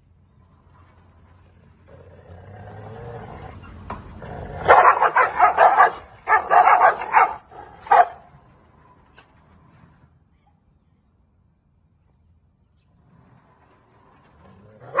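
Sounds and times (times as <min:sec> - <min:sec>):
dogs snarling: 0:01.9 - 0:08.2, 0:14.4 - 0:15.0
dogs barking loudly: 0:04.3 - 0:08.4, 0:14.8 - 0:15.0.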